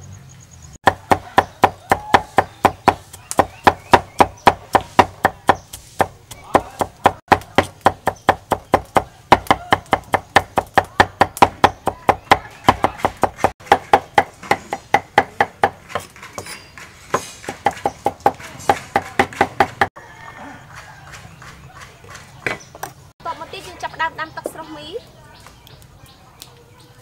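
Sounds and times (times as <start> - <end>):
cleaver chopping on wooden board: 0.8 - 19.9.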